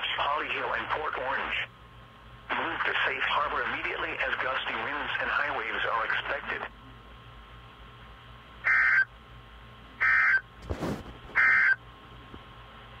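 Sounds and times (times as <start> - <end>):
faint radio hum: 0.0 - 13.0
radio crackle: 2.5 - 6.7.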